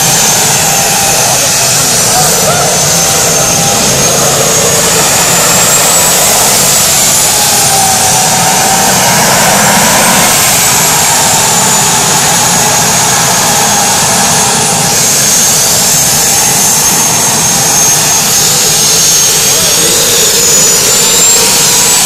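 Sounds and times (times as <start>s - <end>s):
jet engine roaring with turbine whine: 0.0s - 22.0s.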